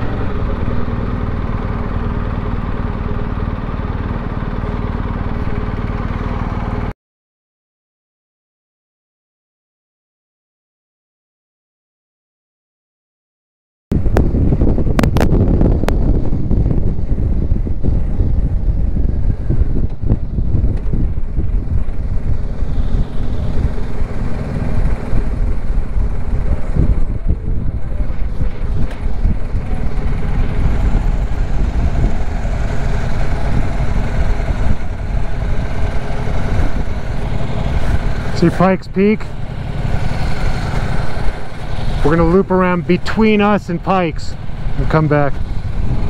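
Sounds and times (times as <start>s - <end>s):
motorcycle riding noise: 0.0s - 6.9s, 14.0s - 46.0s
wind buffeting microphone: 13.9s - 46.0s.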